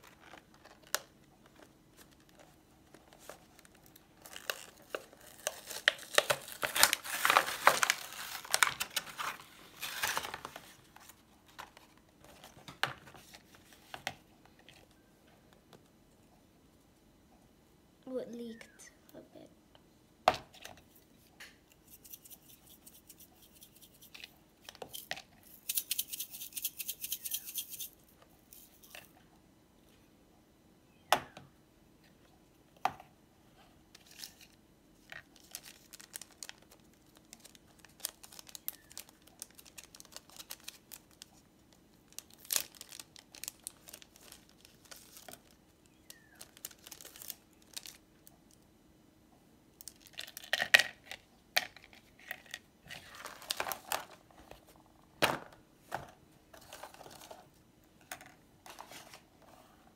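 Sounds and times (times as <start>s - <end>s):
plastic packaging crinkling and tearing: 3.1s - 11.9s, 35.2s - 48.0s.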